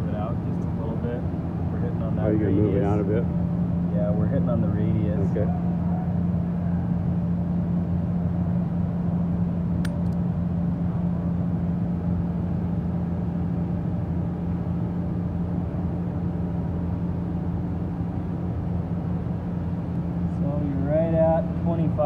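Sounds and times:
motor hum: 0:00.0 - 0:22.0
sharp click: 0:09.8 - 0:10.2.

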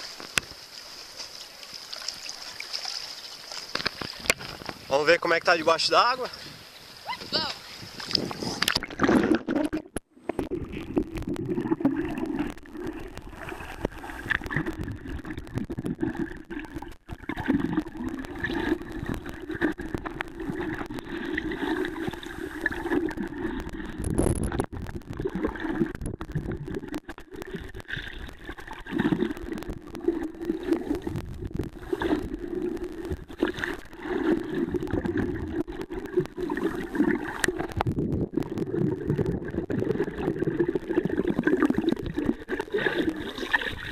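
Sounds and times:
underwater sloshing and gurgling: 0:00.0 - 0:43.9.

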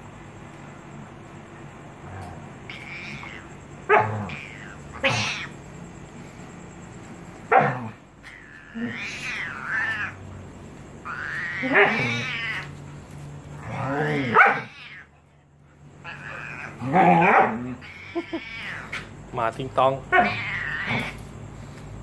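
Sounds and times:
cat yowling: 0:02.6 - 0:05.6, 0:07.5 - 0:10.2, 0:11.0 - 0:12.8, 0:13.6 - 0:15.2, 0:16.0 - 0:19.1, 0:20.1 - 0:21.3.

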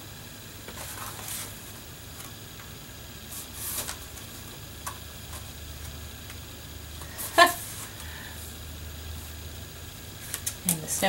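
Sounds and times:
low steady hum: 0:00.0 - 0:11.0
paper and cellophane rustling: 0:00.7 - 0:02.3, 0:03.3 - 0:04.4.

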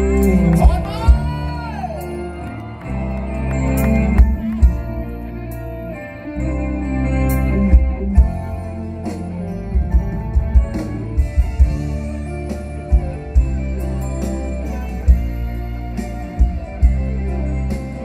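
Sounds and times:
live band with guitars: 0:00.0 - 0:18.0
deep drum beats: 0:07.7 - 0:14.1.

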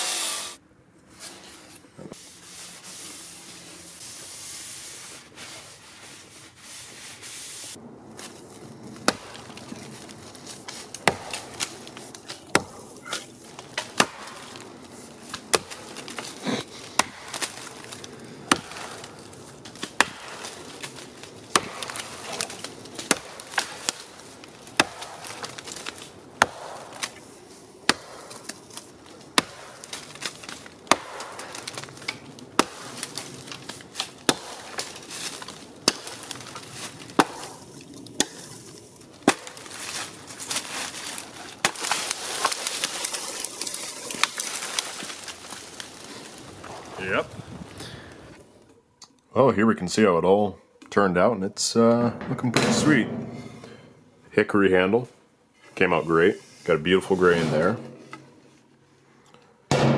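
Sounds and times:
axe chopping into a log: 0:09.0 - 0:09.6, 0:11.0 - 0:14.7, 0:16.9 - 0:17.9, 0:18.5 - 0:19.1, 0:19.7 - 0:24.1, 0:24.7 - 0:27.2, 0:27.9 - 0:28.5, 0:29.3 - 0:36.5, 0:37.1 - 0:37.6, 0:38.2 - 0:38.6, 0:39.2 - 0:40.0.

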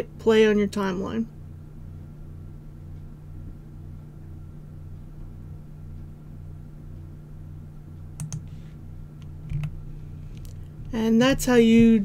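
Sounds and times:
low electrical hum: 0:00.0 - 0:12.0
computer mouse clicks: 0:08.2 - 0:08.6, 0:09.2 - 0:10.6.

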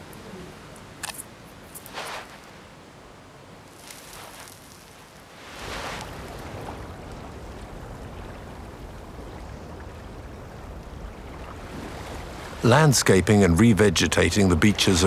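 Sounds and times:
wind: 0:00.0 - 0:15.0
flippers flinging sand: 0:01.7 - 0:02.5, 0:03.7 - 0:06.4
surf rushing: 0:03.7 - 0:14.0.

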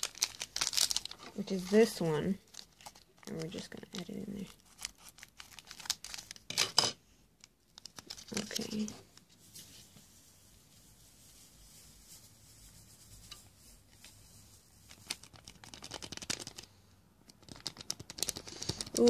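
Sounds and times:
foil packet crinkling: 0:00.0 - 0:06.6, 0:07.7 - 0:09.2, 0:14.8 - 0:16.7, 0:17.4 - 0:19.0
quick small clicks and crackles: 0:14.9 - 0:16.7, 0:17.3 - 0:19.0.

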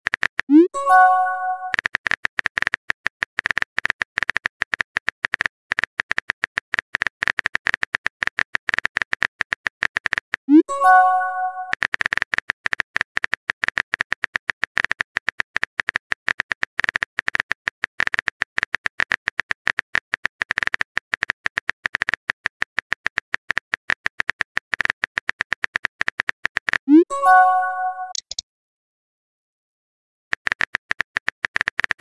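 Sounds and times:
keyboard typing clicks: 0:00.1 - 0:28.4
rising message tone: 0:00.5 - 0:01.8, 0:26.9 - 0:28.2.

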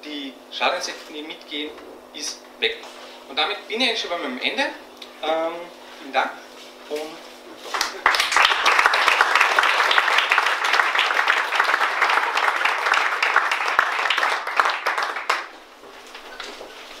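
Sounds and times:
audience applauding: 0:07.7 - 0:15.6.

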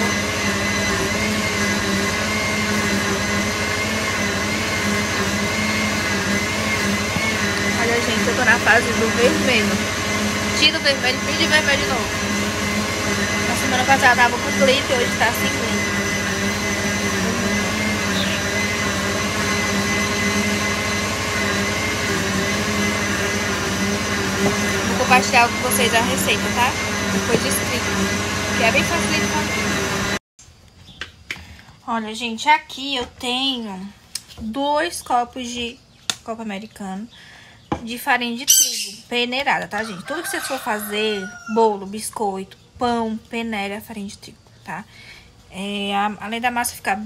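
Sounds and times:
kitchen blender motor whine: 0:00.0 - 0:30.2.

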